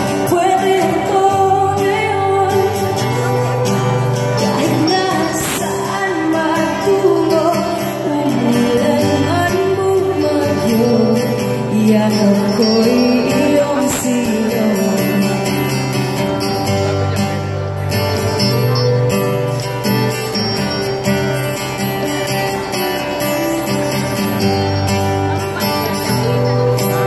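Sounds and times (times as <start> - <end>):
live pop band: 0.0 - 27.0
woman singing: 0.1 - 15.6.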